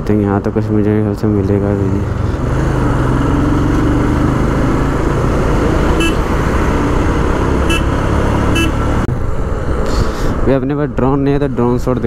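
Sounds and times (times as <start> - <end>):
road and wind rush: 0.0 - 12.0
high-pitched horn toots: 5.9 - 6.3, 7.6 - 8.9.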